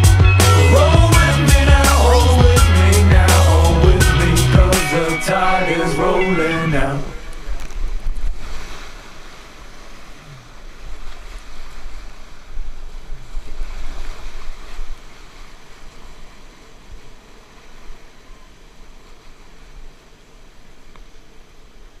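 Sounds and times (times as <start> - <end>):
whitewater rapids rushing: 0.0 - 22.0
wind buffeting microphone: 6.0 - 9.4, 10.7 - 18.4.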